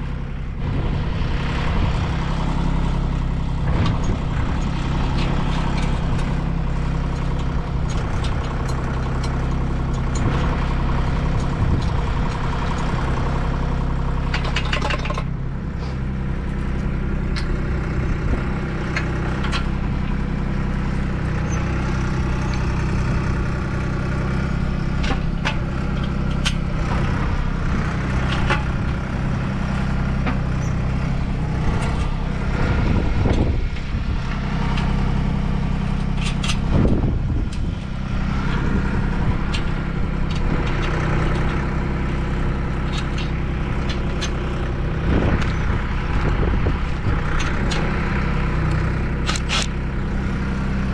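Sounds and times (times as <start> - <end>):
vehicle engine idling: 0.0 - 50.9
metal rails clicking and clanking: 14.0 - 15.4, 18.9 - 20.6, 25.0 - 27.1, 33.3 - 46.2, 47.2 - 50.8.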